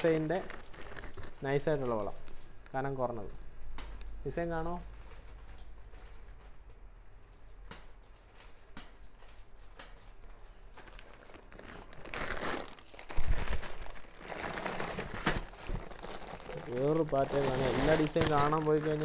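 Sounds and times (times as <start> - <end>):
plastic packaging crinkling: 0.0 - 2.8, 10.6 - 19.0.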